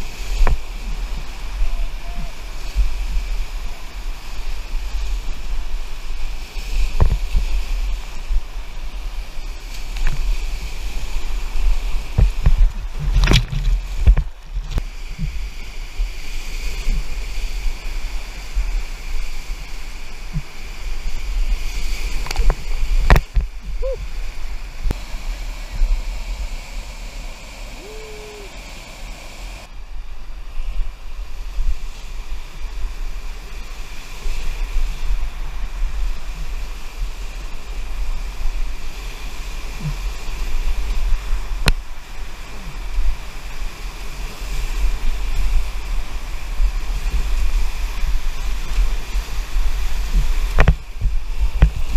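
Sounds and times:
wind buffeting microphone: 0.0s - 26.7s, 29.4s - 51.9s
whitewater rapids rushing: 0.0s - 30.7s.

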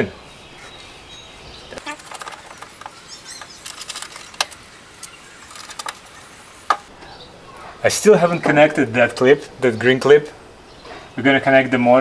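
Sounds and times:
light plastic clicks and rattles: 1.8s - 6.1s.

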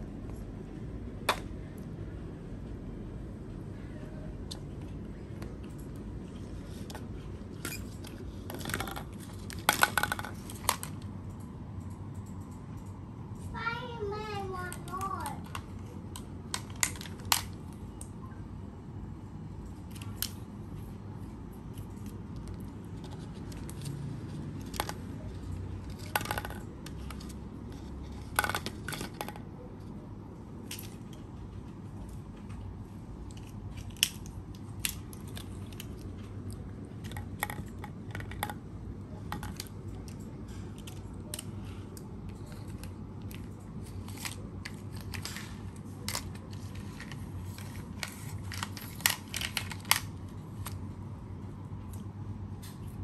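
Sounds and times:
low steady hum: 0.0s - 53.0s
toy cars clacking on tiled floor: 8.5s - 11.0s, 24.6s - 27.4s, 28.0s - 29.5s.

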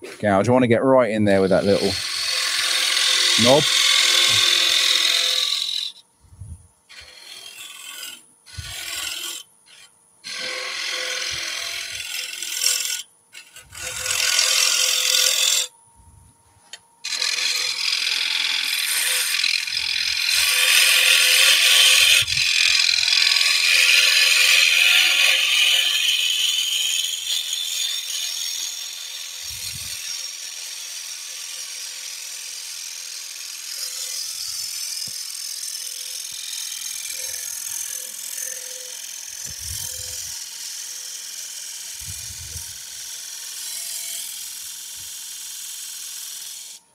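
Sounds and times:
lathe gouge cutting wood: 1.7s - 5.9s, 10.3s - 13.0s, 13.7s - 15.7s, 17.1s - 40.2s.

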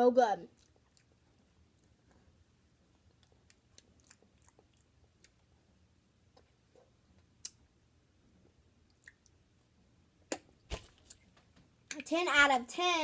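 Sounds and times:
wet mouth clicks and lip smacks: 3.1s - 5.4s, 7.4s - 7.6s, 8.9s - 9.4s.

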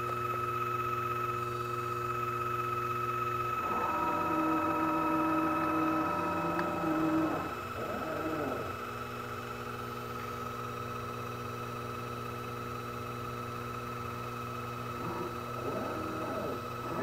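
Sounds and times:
lathe motor hum and whine: 0.0s - 17.0s
stepper axis whine: 3.6s - 8.7s, 15.0s - 17.0s.

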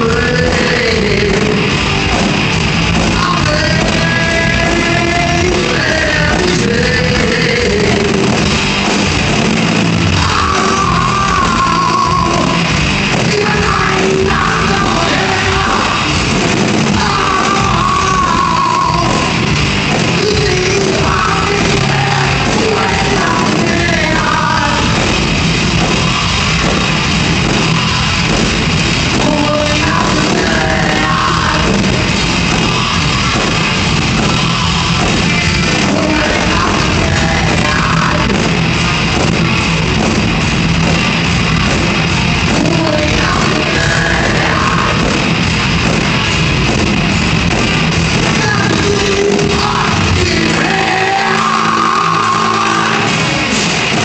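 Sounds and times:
heavy metal band playing live: 0.0s - 54.0s.

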